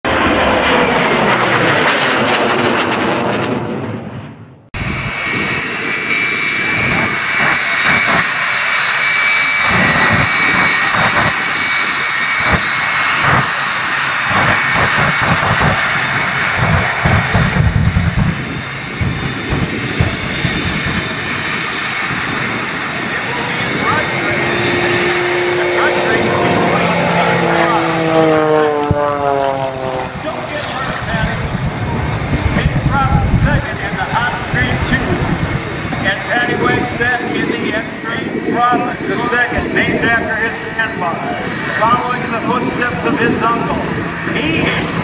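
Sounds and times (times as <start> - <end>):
jet engine roar with whine: 0.0 - 45.0
afterburner crackles and pops: 12.4 - 13.5, 14.3 - 21.0.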